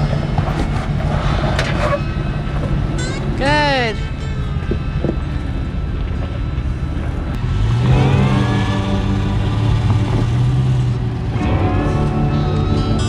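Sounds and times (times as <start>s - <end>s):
engine revving under load: 4.0s - 13.0s.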